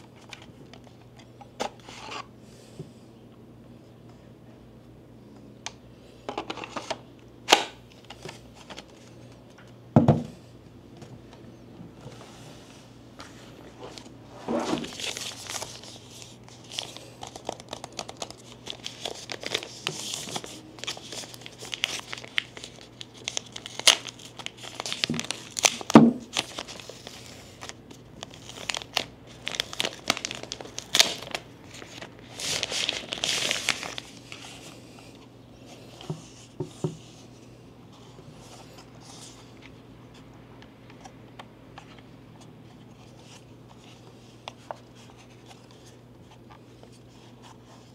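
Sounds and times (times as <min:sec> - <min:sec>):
packaging crinkling and tearing: 0:14.8 - 0:34.6.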